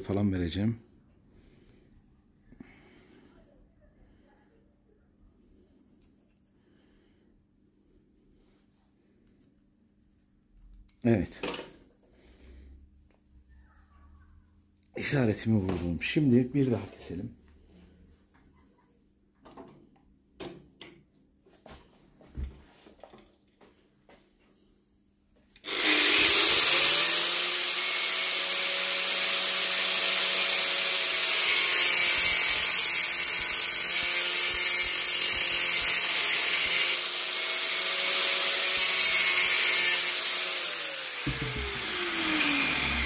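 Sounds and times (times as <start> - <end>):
power tool grinding: 25.6 - 43.0.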